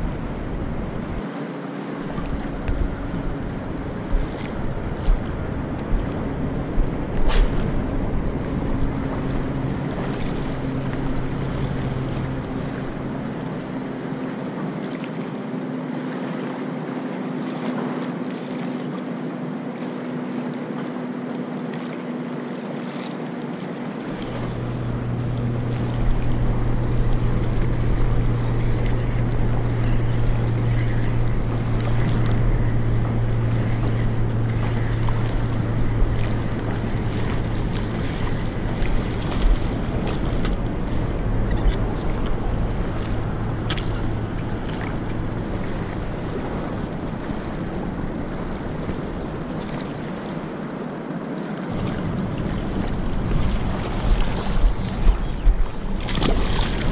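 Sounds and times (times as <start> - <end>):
low engine drone: 0.0 - 56.9
wind noise on microphone: 2.2 - 12.4, 51.7 - 56.9.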